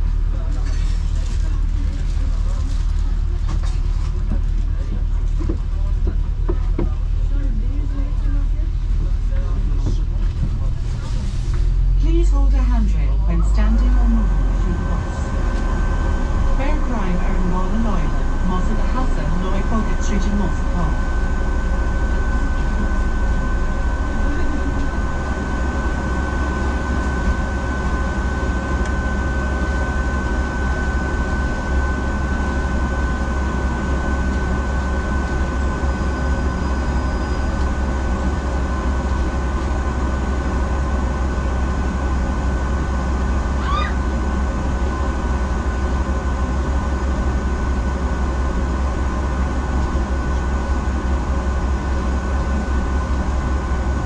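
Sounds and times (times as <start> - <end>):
bus engine idling: 0.0 - 54.0
thin steady whine: 11.7 - 54.0.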